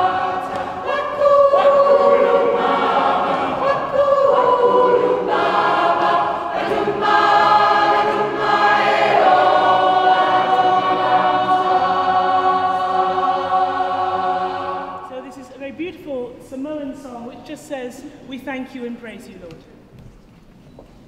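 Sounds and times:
choir singing in harmony: 0.0s - 15.6s.

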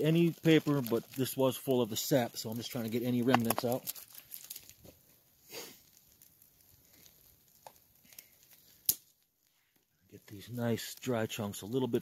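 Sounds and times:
hands rustling and crinkling: 0.0s - 12.0s.

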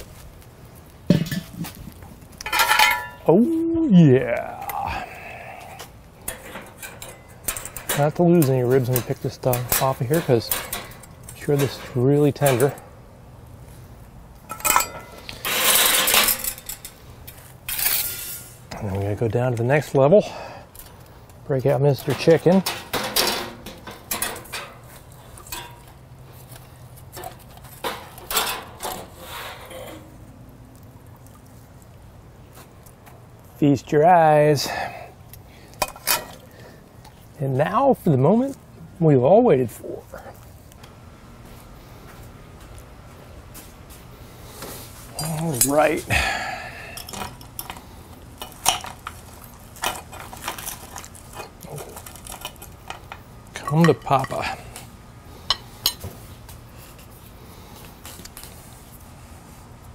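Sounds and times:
tongs scraping on grill grate: 4.6s - 13.0s, 14.4s - 18.7s, 21.6s - 32.0s, 46.7s - 57.2s.

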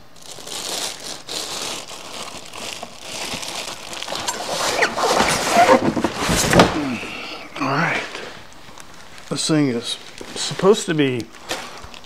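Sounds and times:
plastic wrapping crinkling: 0.0s - 6.7s, 8.4s - 12.0s
packing rubbing against cardboard: 3.2s - 6.7s
short squeaks: 4.2s - 6.0s.

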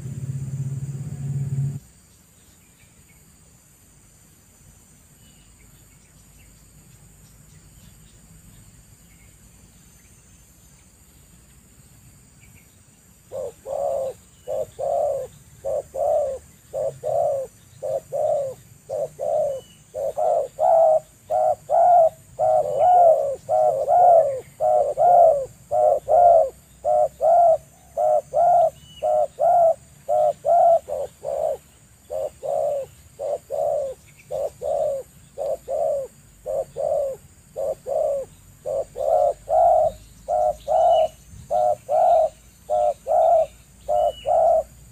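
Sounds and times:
dove cooing: 13.3s - 44.9s.

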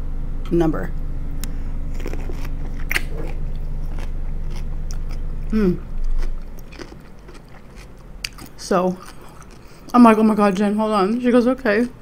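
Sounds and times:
steady low hum: 0.0s - 12.0s
crunchy bite into pickle: 1.4s - 9.7s
chewing with small crunches: 1.4s - 12.0s.

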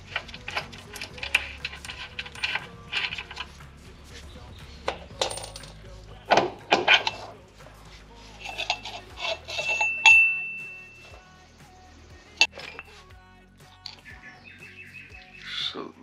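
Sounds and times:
metal parts clinking: 0.0s - 3.5s, 4.9s - 7.4s, 8.4s - 11.2s, 12.4s - 12.9s
ringing metal clink: 4.9s - 7.2s, 8.4s - 11.2s.

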